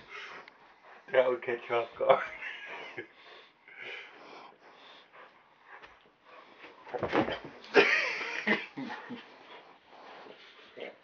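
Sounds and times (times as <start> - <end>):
dog wheezy snuffling breathing: 0.0 - 6.9, 8.2 - 11.0.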